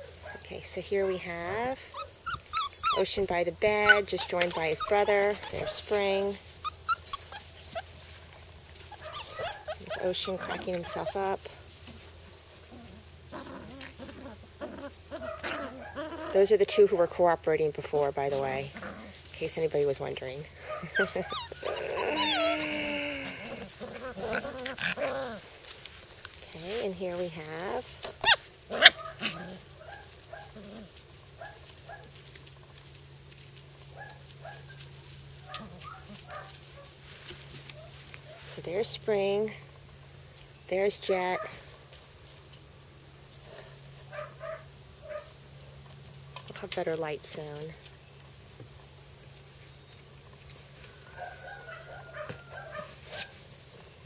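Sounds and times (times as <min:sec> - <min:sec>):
puppies yelping and yipping: 0:01.8 - 0:11.4, 0:12.6 - 0:16.4, 0:20.6 - 0:25.6, 0:28.1 - 0:32.1.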